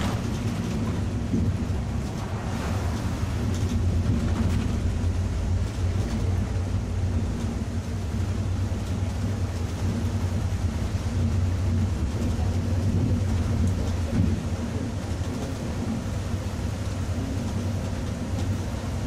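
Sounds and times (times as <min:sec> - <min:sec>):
diesel engine drone: 0:00.0 - 0:19.0
heavy rain on windscreen: 0:00.0 - 0:19.0
tyres on wet road: 0:00.0 - 0:19.0.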